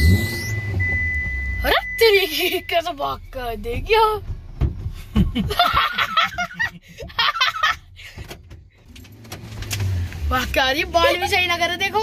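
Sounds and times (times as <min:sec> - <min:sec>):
car hum: 0:00.0 - 0:12.0
children laughing: 0:05.0 - 0:07.9.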